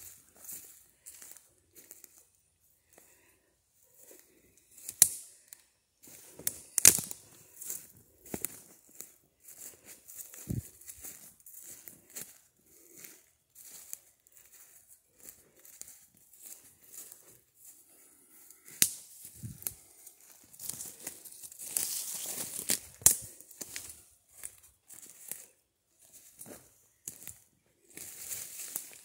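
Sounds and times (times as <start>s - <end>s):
footsteps crunching dry leaves: 0.0s - 2.2s, 6.0s - 29.0s
twigs cracking: 4.7s - 5.3s, 6.1s - 9.0s, 18.5s - 25.5s.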